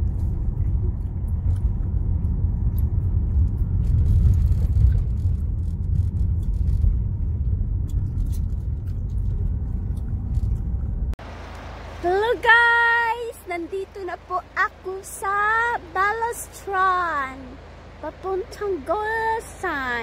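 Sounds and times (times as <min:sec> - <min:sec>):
engine and tyre rumble: 0:00.0 - 0:20.0.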